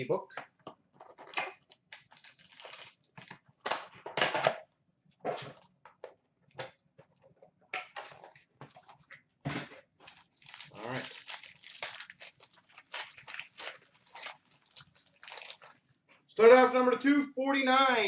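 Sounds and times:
foil wrapper crinkling and tearing: 1.8s - 3.4s, 10.0s - 15.9s.

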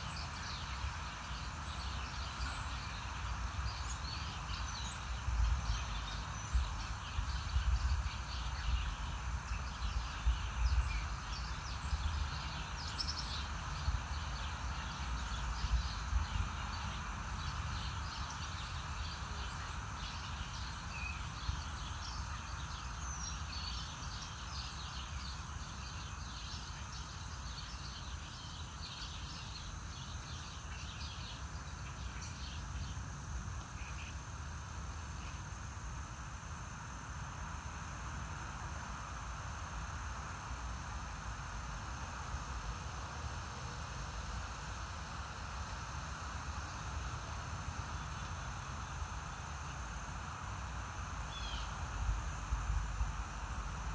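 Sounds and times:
steady hiss: 0.0s - 53.9s.

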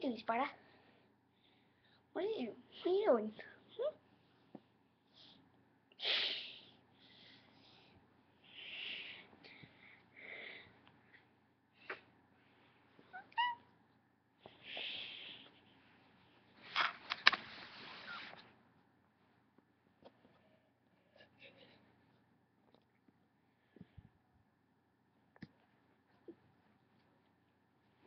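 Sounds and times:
breathy hiss-like noises: 0.5s - 13.1s, 14.4s - 16.7s.

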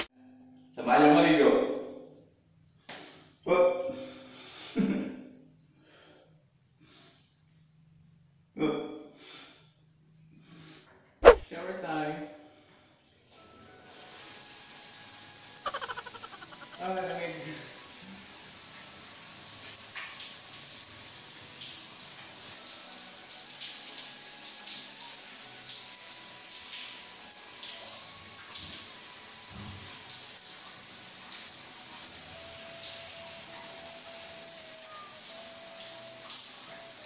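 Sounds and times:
shower water splashing: 13.4s - 37.0s.

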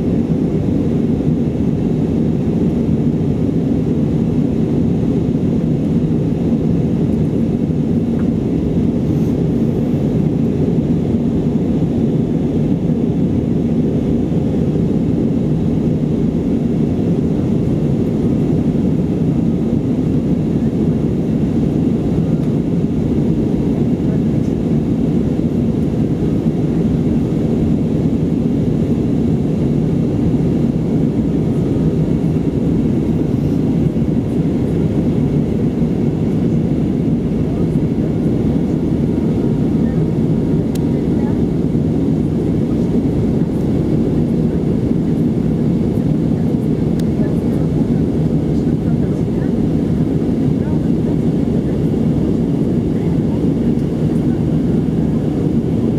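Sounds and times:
airplane cabin engine drone: 0.0s - 55.9s.

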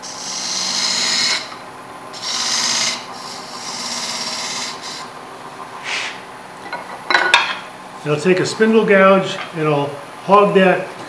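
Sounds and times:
lathe motor hum: 0.0s - 6.5s.

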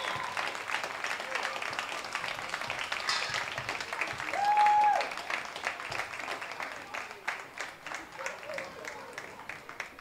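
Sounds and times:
spectators clapping: 0.0s - 10.0s.

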